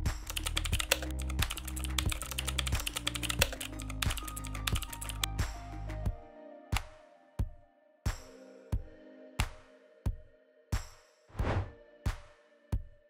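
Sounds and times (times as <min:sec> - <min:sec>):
background music: 0:00.0 - 0:13.0
rapid keyboard typing: 0:00.2 - 0:05.3.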